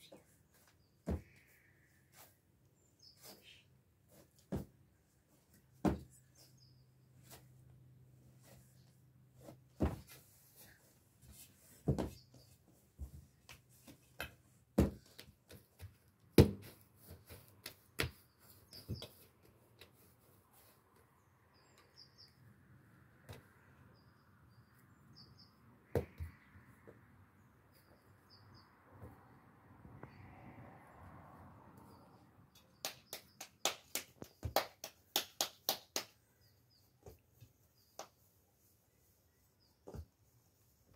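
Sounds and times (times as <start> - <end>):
small birds chirping: 0.0 - 4.2, 6.1 - 7.4, 17.0 - 22.6, 23.4 - 26.6, 27.3 - 29.1, 31.8 - 34.6, 36.2 - 40.8.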